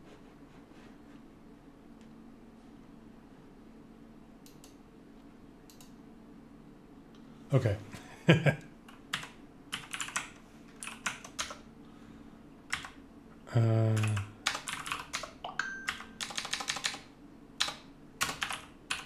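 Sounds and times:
typing on keyboard: 8.9 - 11.6, 12.7 - 13.0, 14.0 - 19.0
voice humming low: 13.4 - 14.3.

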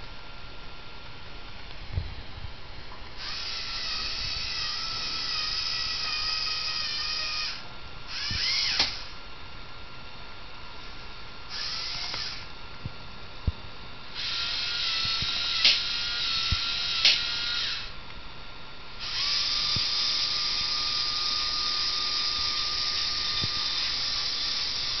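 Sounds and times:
robot arm motors whirring: 3.2 - 9.2, 11.5 - 12.5, 14.2 - 18.0, 19.0 - 25.0.

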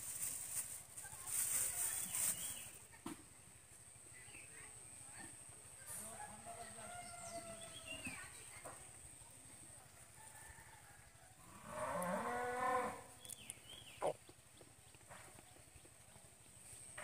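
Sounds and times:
cow mooing: 11.5 - 13.0.

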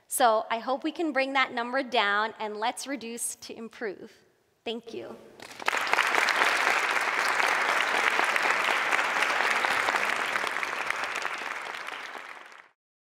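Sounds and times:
audience applauding: 5.4 - 12.8.

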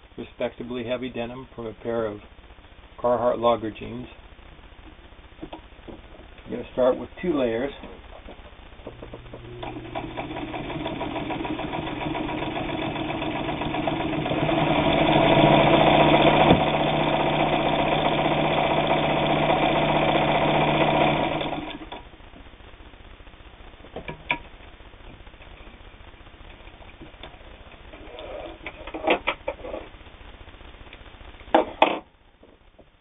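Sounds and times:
sewing machine stitching: 9.5 - 22.0.

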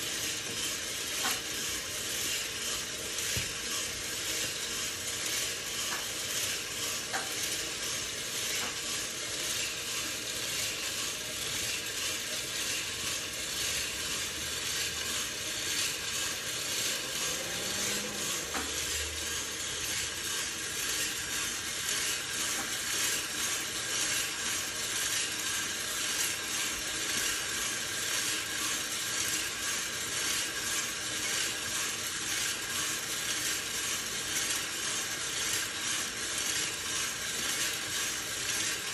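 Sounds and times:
coffee beans rustling in drum: 0.0 - 38.9.

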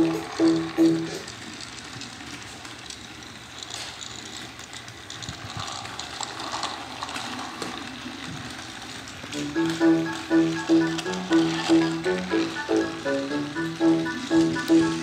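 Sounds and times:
clicks and rattles on track: 0.0 - 15.0
toy train motor whirring: 0.0 - 15.0.

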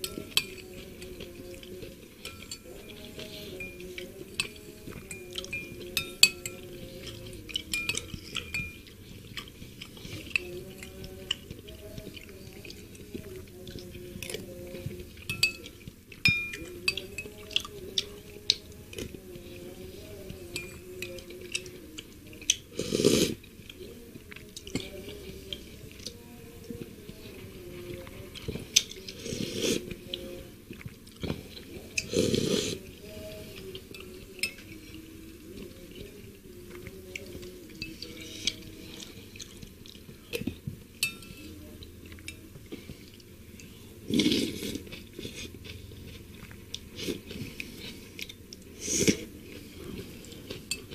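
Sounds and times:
chewing: 0.0 - 50.9
slurping broth: 22.7 - 23.4, 32.0 - 32.8, 44.1 - 45.7.

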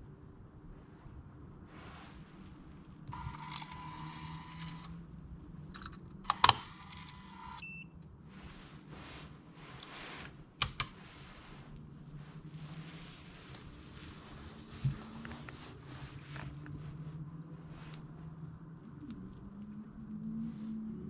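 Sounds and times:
motors whirring: 3.1 - 4.9
short beep: 7.6 - 8.0
sharp clicks: 10.6 - 11.0.

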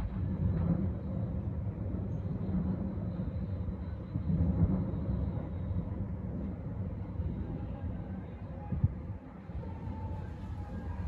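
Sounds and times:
distant city rumble: 0.0 - 11.0.

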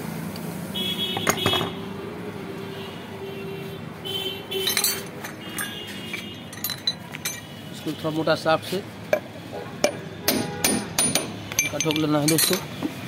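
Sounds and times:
steel tool tapping metal hub: 9.2 - 12.7.

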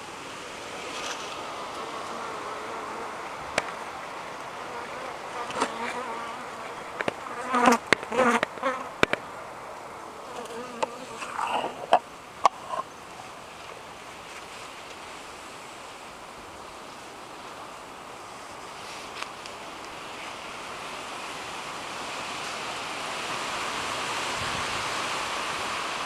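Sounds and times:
honeybees buzzing in hive: 1.4 - 9.2, 10.0 - 13.0.

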